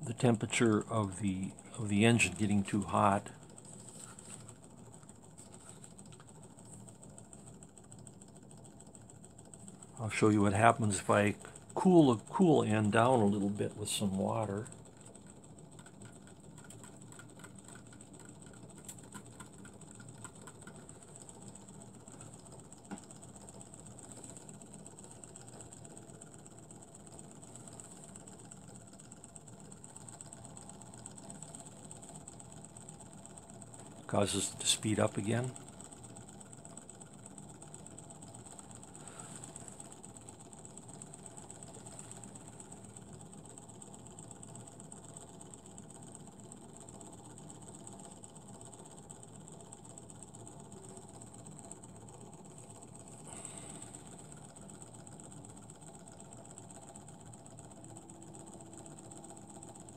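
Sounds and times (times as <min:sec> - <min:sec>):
model engine mechanical ticking: 0:00.0 - 0:59.9.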